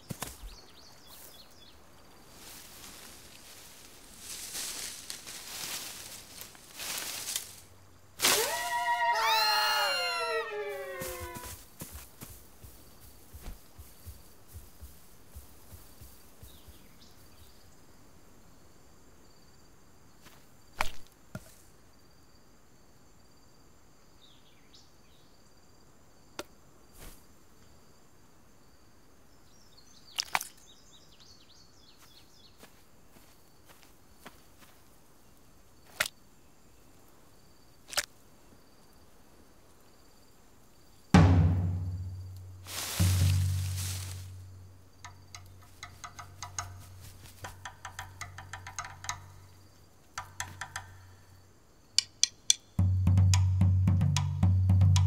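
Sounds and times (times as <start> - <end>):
high insect drone: 2.0 - 20.4, 38.4 - 55.0
drum beat: 41.2 - 42.2, 43.0 - 43.9, 52.8 - 55.0
sharp knocks: 45.0 - 49.4
sharp tick: 52.0 - 52.7.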